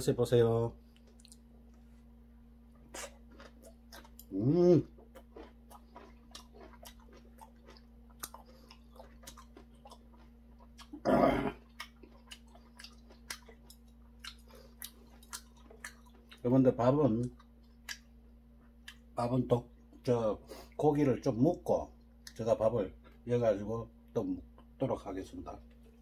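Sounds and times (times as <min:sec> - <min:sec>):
faint steady hum: 0:00.0 - 0:26.0
person chewing crunchy food: 0:02.7 - 0:19.2
short hummed vocal sounds: 0:02.8 - 0:05.6, 0:10.8 - 0:12.0.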